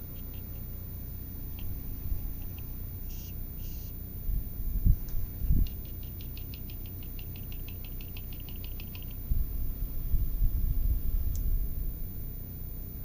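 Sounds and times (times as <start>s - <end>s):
fan ticking: 0.0s - 11.6s
sharp click: 5.0s - 9.2s.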